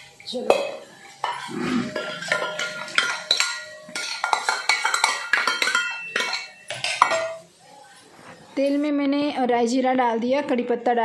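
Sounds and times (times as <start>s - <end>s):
spoon clinking on metal bowls: 0.0s - 7.4s.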